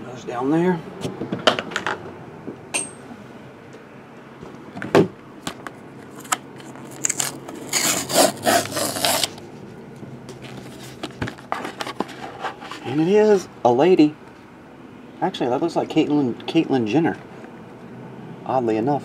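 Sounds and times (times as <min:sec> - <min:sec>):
cardboard scraping and rustling: 0:06.1 - 0:09.6, 0:10.3 - 0:13.4.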